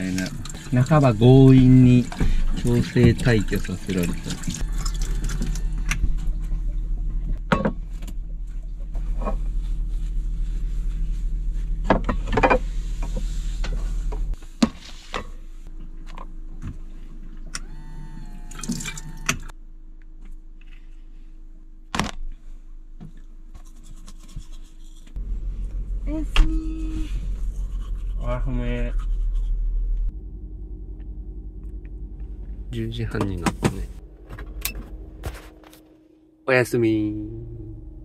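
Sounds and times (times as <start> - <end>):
running water: 0.0 - 5.9, 18.4 - 19.5
low motor hum: 0.0 - 14.6, 15.2 - 23.5, 25.2 - 38.0.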